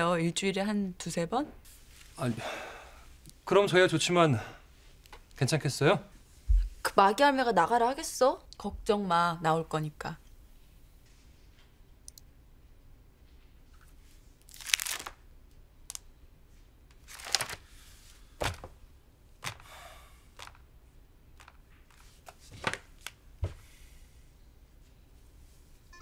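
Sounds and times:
paper pages rustling: 0:13.7 - 0:15.2, 0:16.9 - 0:17.7, 0:18.4 - 0:18.7, 0:19.4 - 0:19.6, 0:20.4 - 0:20.6, 0:21.4 - 0:23.2.

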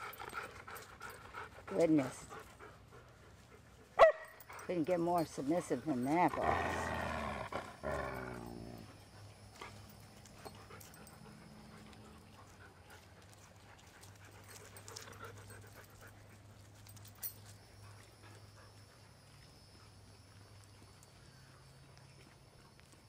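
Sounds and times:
dog panting: 0:00.0 - 0:06.9, 0:07.5 - 0:20.0
faint clicks and rustles: 0:09.0 - 0:23.0.

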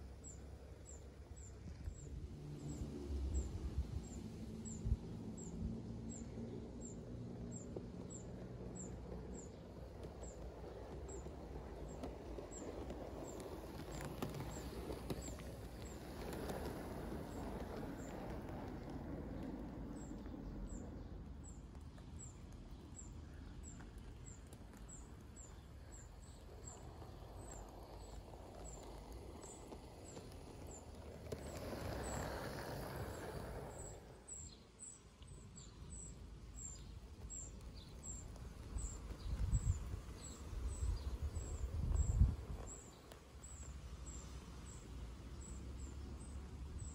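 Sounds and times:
model train rumbling on track: 0:04.4 - 0:34.6.

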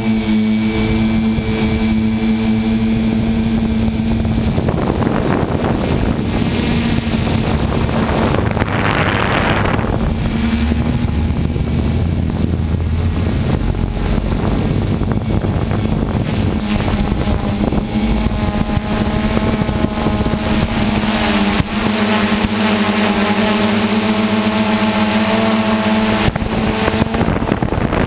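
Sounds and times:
drone motors humming: 0:00.0 - 0:28.0
wind noise on microphone: 0:00.0 - 0:28.0.

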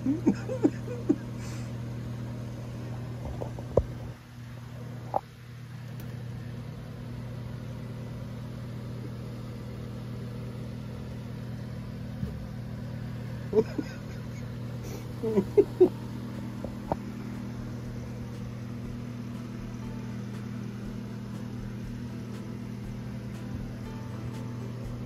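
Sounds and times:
low mechanical hum: 0:00.0 - 0:25.0.

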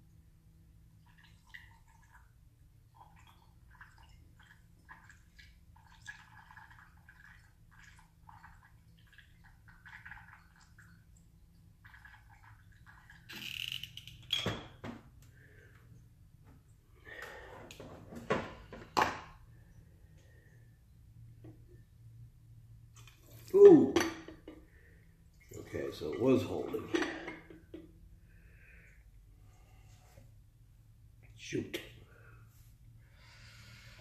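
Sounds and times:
fuel trickling through funnel: 0:00.9 - 0:14.2.

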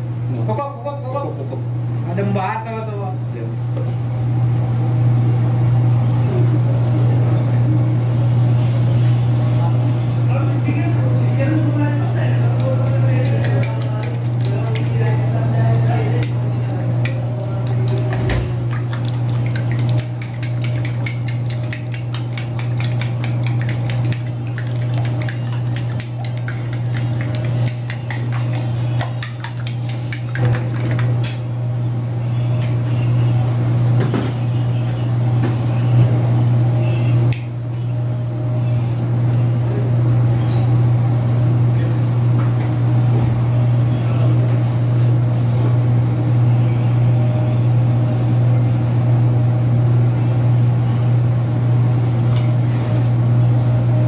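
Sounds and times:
steady low hum: 0:00.0 - 0:54.0
fork beating eggs on plate: 0:12.6 - 0:15.4, 0:16.1 - 0:31.5.

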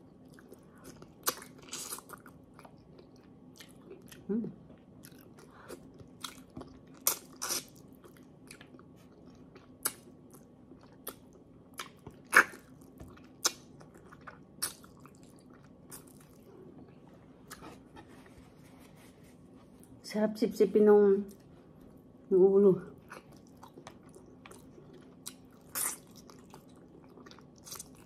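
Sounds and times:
chewing and sucking on fish: 0:23.0 - 0:28.0.

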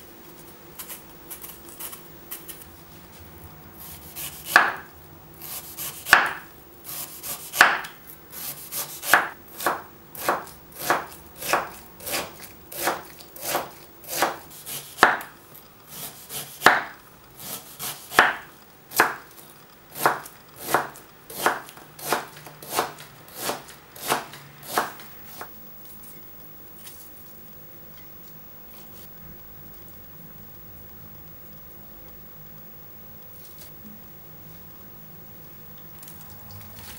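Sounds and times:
knife slicing pear: 0:03.8 - 0:25.5.

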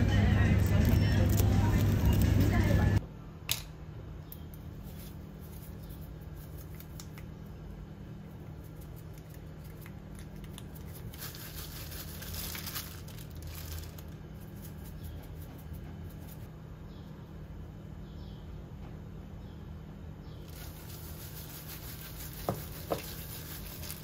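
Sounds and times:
steady low hum: 0:00.0 - 0:24.0
spice shaker rattling: 0:08.6 - 0:16.4, 0:20.5 - 0:24.0.

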